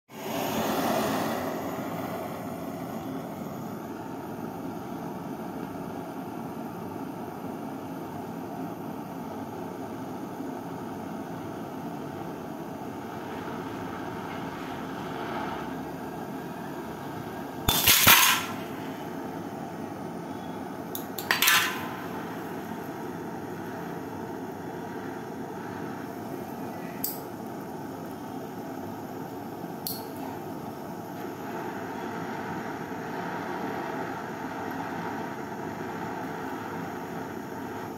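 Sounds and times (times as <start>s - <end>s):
butane torch hissing: 0.1s - 5.9s, 11.9s - 37.9s
glass cracking loudly: 17.7s - 18.6s.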